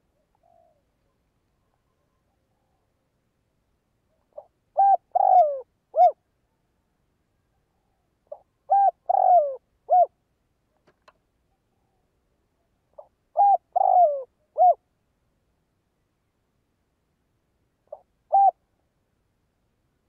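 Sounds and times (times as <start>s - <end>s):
dove cooing: 0.2s - 0.9s, 4.3s - 6.2s, 8.3s - 10.2s, 13.0s - 14.8s, 17.9s - 18.6s.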